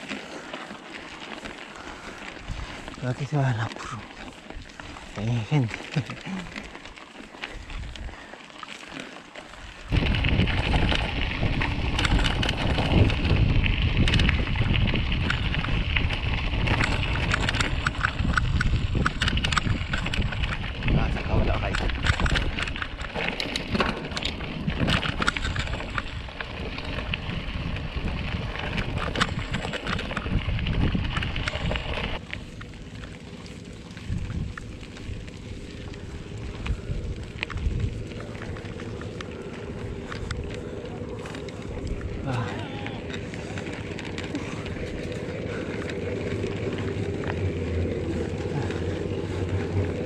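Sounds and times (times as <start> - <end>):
bike tyres crunching on gravel: 0.0 - 50.0
wind noise on microphone: 9.9 - 32.2, 34.0 - 50.0
small clicks: 11.8 - 14.5, 15.2 - 20.7, 28.6 - 33.1.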